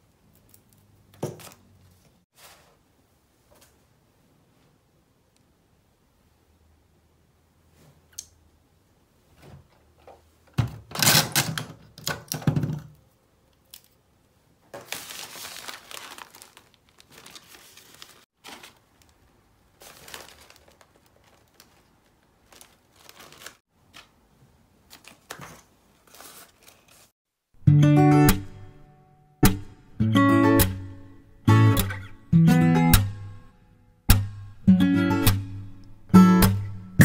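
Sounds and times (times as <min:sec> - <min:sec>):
paper wrapping rustling: 0:14.7 - 0:24.2, 0:24.9 - 0:27.1.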